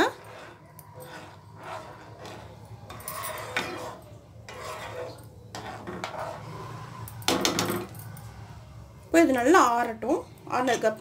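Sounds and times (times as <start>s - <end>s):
spoon stirring cooked fruit: 0.0s - 7.1s.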